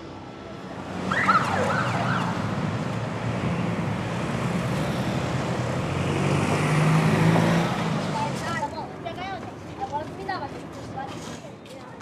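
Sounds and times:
traffic driving past: 0:00.0 - 0:11.6
wailing siren: 0:01.0 - 0:02.5.

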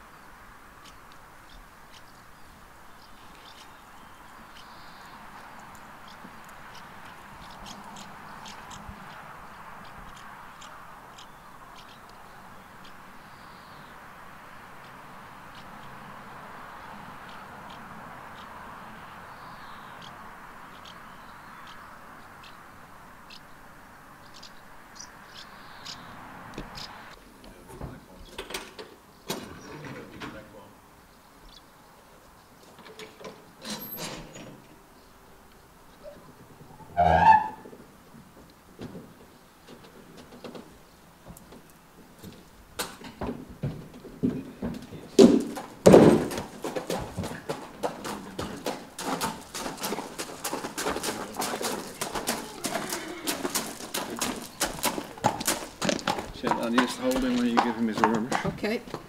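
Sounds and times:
horse hooves on horsebox ramp: 0:36.0 - 0:59.0.

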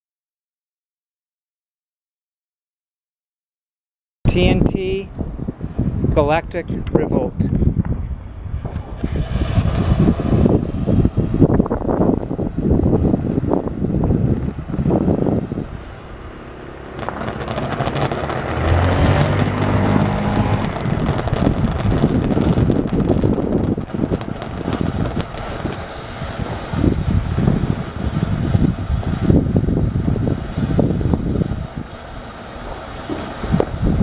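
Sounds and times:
firework fountain hissing and crackling: 0:08.1 - 0:34.0.

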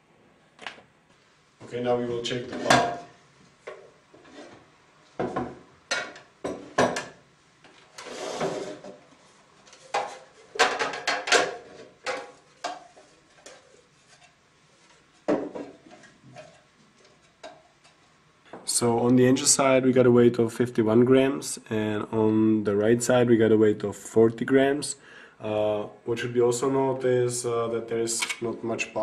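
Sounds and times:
glass and plastic containers clattering: 0:09.9 - 0:12.9.

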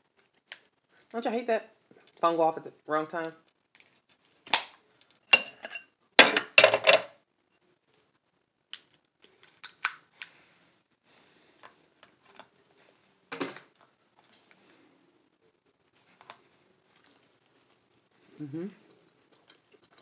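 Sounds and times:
lobster shell cracking: 0:03.7 - 0:05.2
small shell clicks and crackles: 0:08.7 - 0:10.3.

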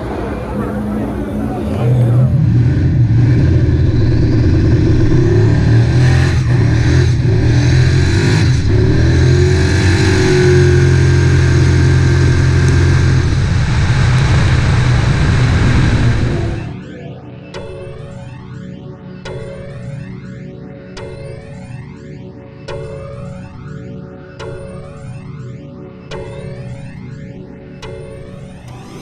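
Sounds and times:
drag car engine rumbling: 0:00.0 - 0:17.2, 0:28.2 - 0:29.0.

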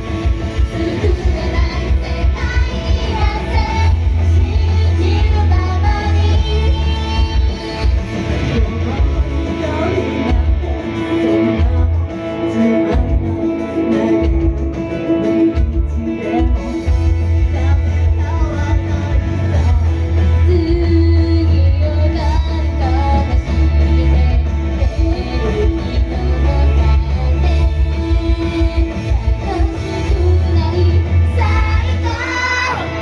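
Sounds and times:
heavy pulsing bass: 0:00.0 - 0:33.0
pop-rock song performed live: 0:00.0 - 0:33.0
female group vocals: 0:00.6 - 0:08.3, 0:19.8 - 0:33.0.

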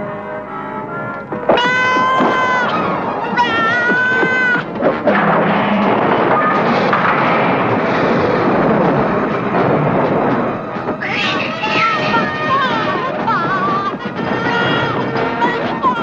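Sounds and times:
dense noisy din: 0:01.1 - 0:16.0
cartoon baby unicorn crying: 0:01.6 - 0:04.6.

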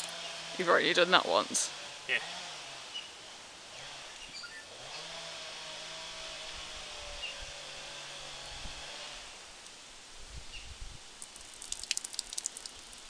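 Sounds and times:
outdoor background noise: 0:00.0 - 0:13.0
distant motor humming: 0:01.7 - 0:09.4.

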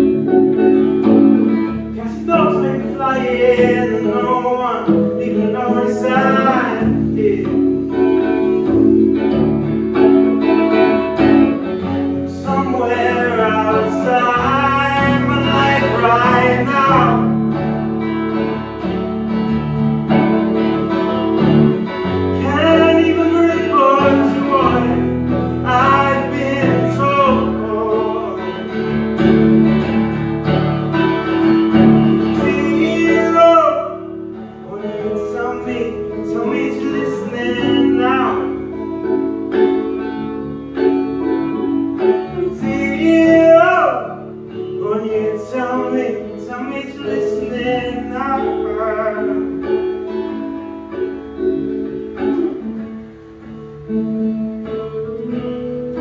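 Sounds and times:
electric guitar: 0:00.0 - 0:56.0
man singing: 0:01.5 - 0:08.3, 0:11.9 - 0:17.7, 0:22.2 - 0:29.0, 0:32.0 - 0:39.0, 0:42.4 - 0:49.8.

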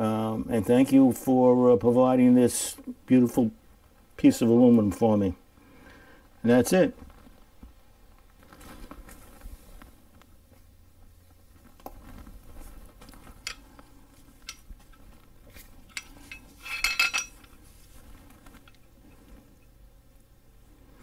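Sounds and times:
metal tools clinking: 0:13.4 - 0:13.8, 0:14.4 - 0:17.7.

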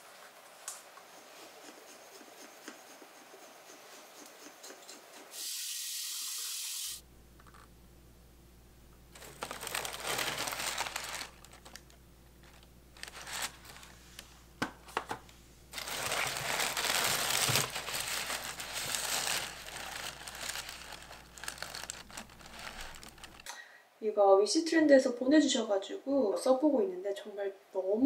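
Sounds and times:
packing paper crinkling: 0:09.1 - 0:14.2, 0:15.7 - 0:23.5.

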